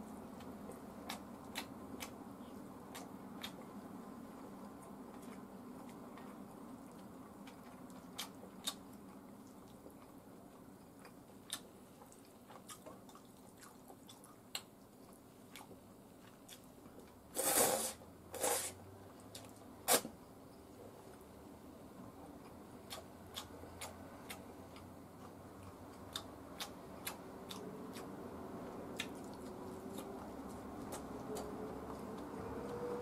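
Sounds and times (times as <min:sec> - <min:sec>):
noodles being slurped: 0:17.4 - 0:18.8.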